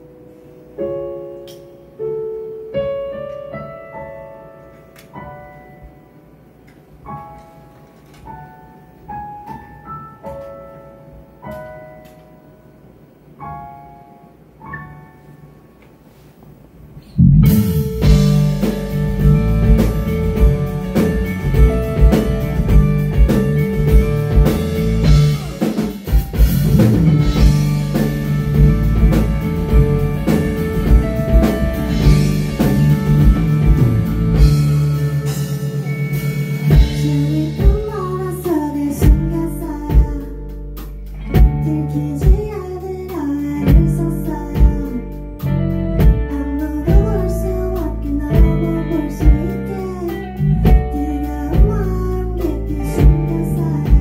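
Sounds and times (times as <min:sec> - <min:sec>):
drum hits: 0:17.2 - 0:38.0
live band playing: 0:17.2 - 0:54.0
woman singing: 0:36.9 - 0:40.6, 0:41.4 - 0:45.2, 0:46.3 - 0:54.0.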